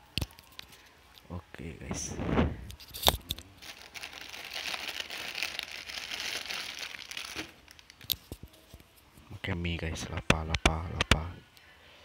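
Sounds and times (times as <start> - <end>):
plastic wrapper crinkling: 2.8 - 8.4.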